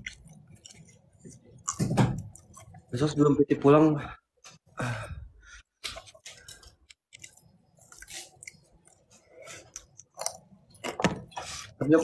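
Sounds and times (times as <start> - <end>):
mouth chewing sounds: 0.0 - 2.9.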